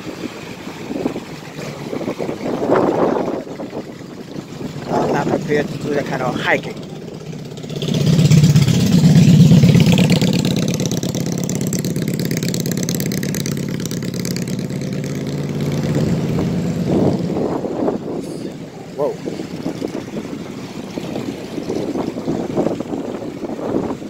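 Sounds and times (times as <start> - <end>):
vehicle engine running: 0.0 - 24.0.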